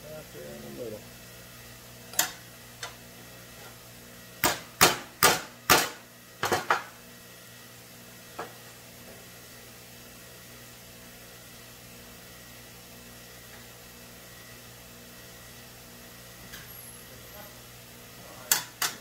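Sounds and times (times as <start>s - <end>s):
hammer striking metal rods: 4.4s - 6.7s.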